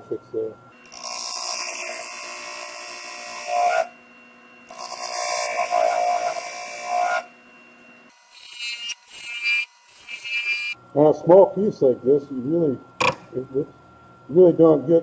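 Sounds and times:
tool cutting wood on a lathe: 0.8s - 4.0s, 4.6s - 10.8s.

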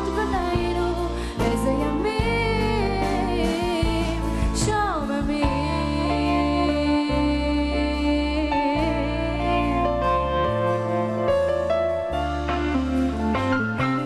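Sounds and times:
drums: 0.0s - 7.2s, 10.7s - 14.0s
bass notes: 0.0s - 14.0s
live band music: 9.4s - 14.0s.

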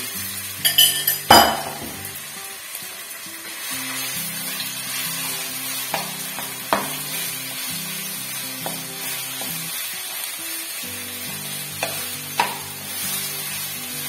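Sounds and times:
chicken sizzling in hot oil: 0.0s - 14.0s
spatula knocking against pan: 11.8s - 12.6s.

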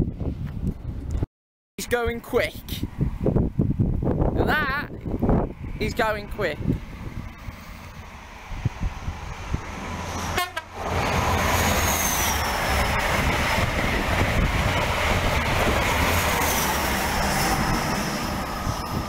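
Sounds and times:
train wheels and air rushing: 6.6s - 19.0s.

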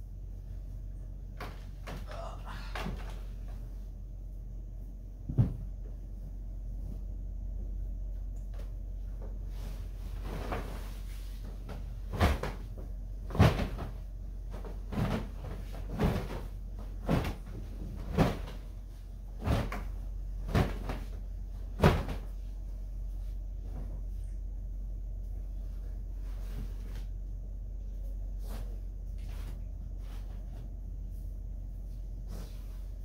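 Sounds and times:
low hum: 0.0s - 33.0s
sharp knocks and bumps: 5.2s - 6.0s, 11.6s - 18.6s.

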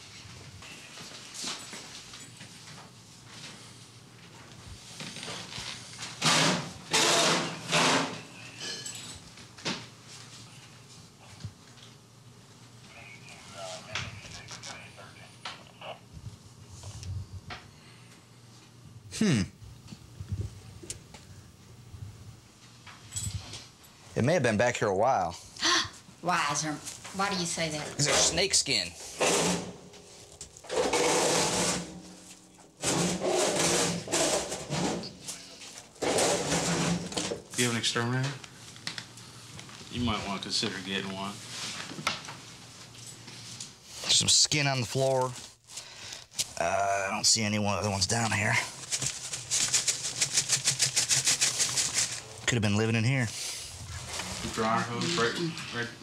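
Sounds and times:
household items scraping and rustling: 27.9s - 37.3s, 48.2s - 55.8s
plastic bag crinkling: 48.5s - 52.5s.

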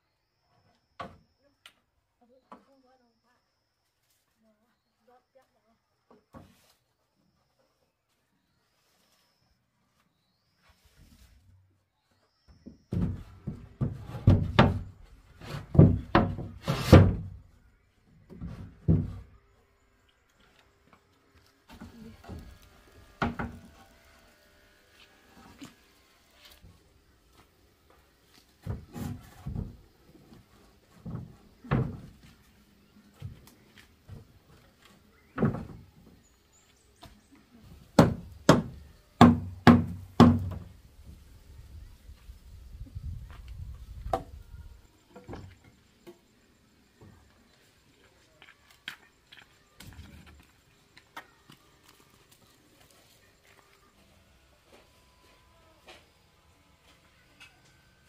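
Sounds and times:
wooden pole knocking corrugated roof: 12.9s - 14.9s, 15.7s - 17.3s, 38.0s - 40.7s
hammer knocking on wood: 38.0s - 40.7s.

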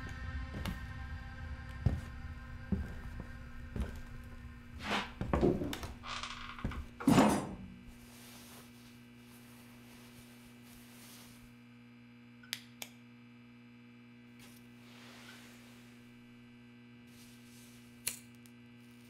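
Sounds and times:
low electrical hum: 0.0s - 19.0s
soft rustle: 7.9s - 11.6s.

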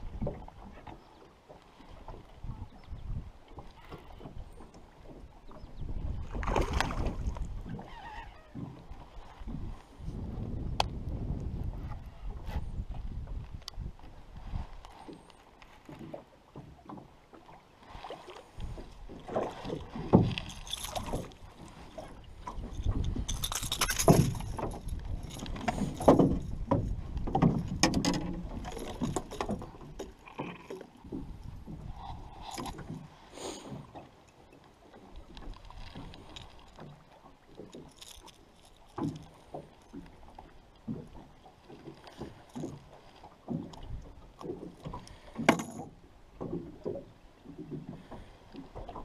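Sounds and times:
fish flopping on aluminium boat: 3.6s - 34.2s, 34.8s - 49.0s.

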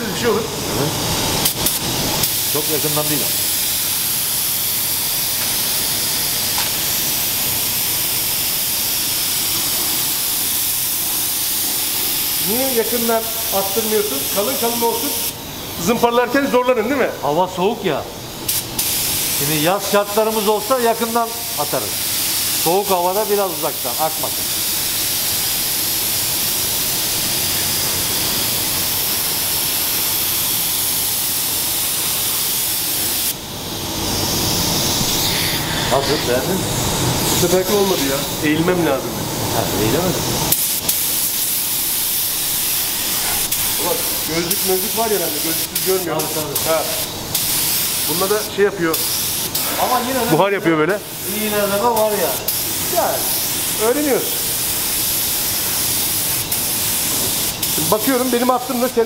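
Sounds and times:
paint spray gun hissing: 0.0s - 59.0s.

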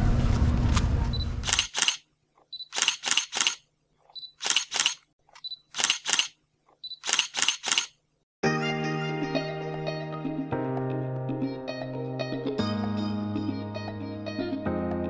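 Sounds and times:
camera shutter clicks: 1.4s - 2.0s, 2.6s - 3.6s, 4.3s - 6.4s, 7.0s - 8.0s
music: 8.4s - 15.0s.

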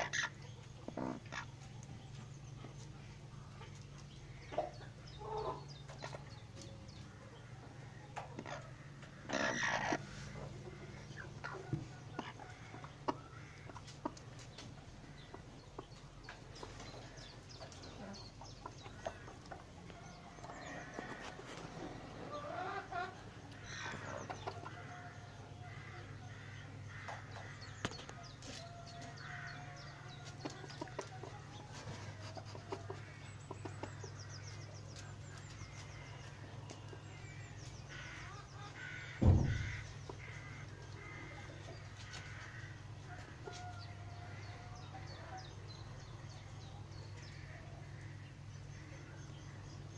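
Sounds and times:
hens clucking: 0.0s - 49.9s
steady low hum: 0.1s - 49.9s
loud thump: 39.2s - 40.0s.

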